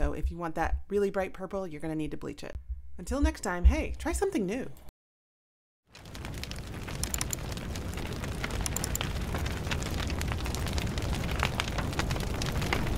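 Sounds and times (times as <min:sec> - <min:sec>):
fire crackling: 0:05.9 - 0:12.9.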